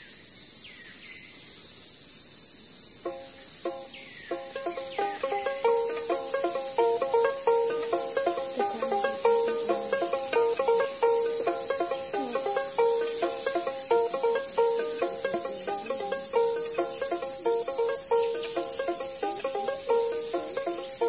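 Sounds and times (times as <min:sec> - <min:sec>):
insects chirring: 0:00.0 - 0:21.0
plucked instrument melody: 0:03.1 - 0:21.0.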